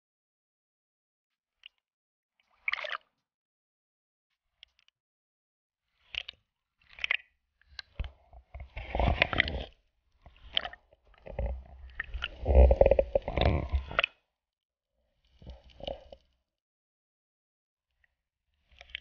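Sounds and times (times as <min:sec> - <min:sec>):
water sloshing and bubbling: 0:01.5 - 0:03.3, 0:05.8 - 0:14.4, 0:15.0 - 0:16.5, 0:17.9 - 0:19.0.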